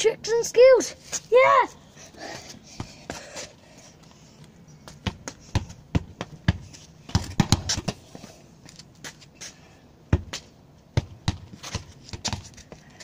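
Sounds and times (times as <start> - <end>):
footsteps and scuffs on paving: 2.3 - 9.7
ball knocking off shoes: 4.9 - 8.0, 11.0 - 12.6.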